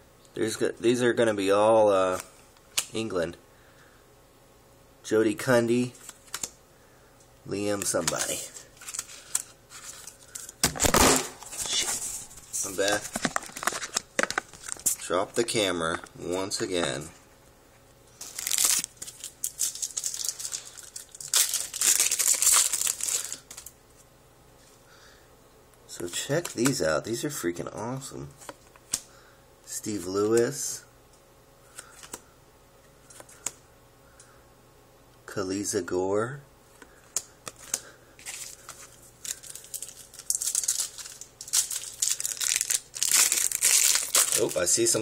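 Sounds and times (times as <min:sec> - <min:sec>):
foil wrapper crinkling: 0:07.8 - 0:15.1, 0:18.2 - 0:23.7, 0:37.2 - 0:45.0.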